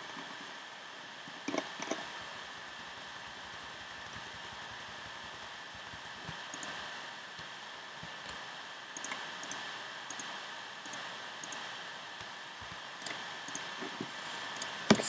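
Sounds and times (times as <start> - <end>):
steady hiss: 0.0 - 15.0
computer mouse clicking: 1.4 - 2.1, 5.3 - 6.8, 9.0 - 15.0.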